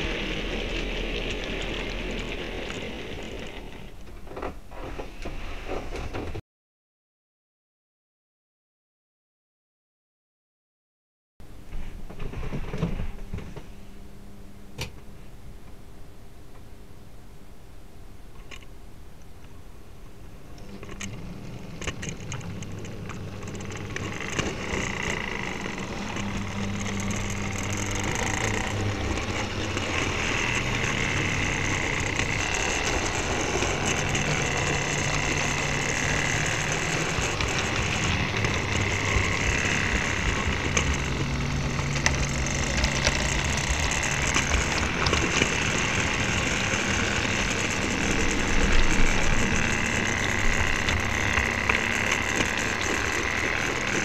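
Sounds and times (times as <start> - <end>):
model train motor whine: 0.0 - 6.0, 20.6 - 54.0
wheels clicking over rail joints: 0.0 - 6.4, 20.6 - 54.0.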